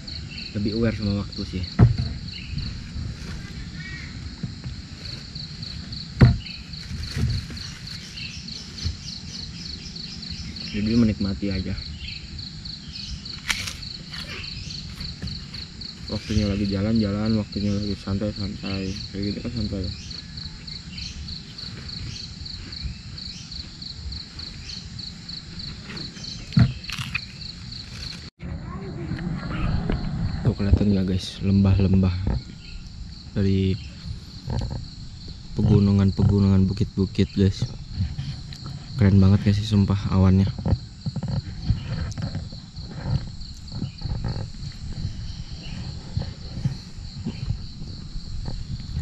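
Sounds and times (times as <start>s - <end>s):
insects chirping: 0.0s - 49.0s
dull thump: 1.7s - 2.8s, 6.2s - 7.7s
low rumble: 28.4s - 33.2s.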